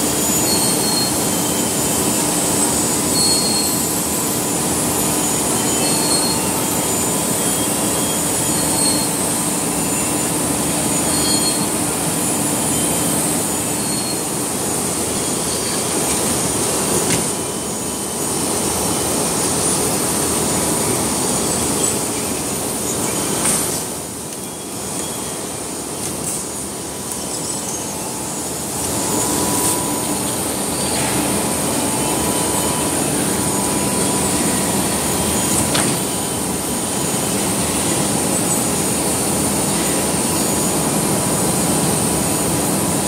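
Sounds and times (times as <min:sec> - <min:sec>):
machinery din of motors and rollers: 0:00.0 - 0:43.0
faint short squeak: 0:00.3 - 0:01.7, 0:03.1 - 0:03.8, 0:05.5 - 0:09.2, 0:10.9 - 0:11.8, 0:13.7 - 0:14.3.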